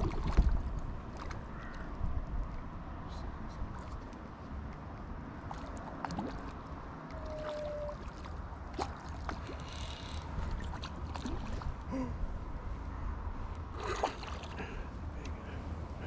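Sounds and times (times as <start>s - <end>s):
small waves lapping: 0.0s - 1.9s, 5.3s - 12.1s, 13.7s - 15.5s
wind rumble on microphone: 0.0s - 14.7s.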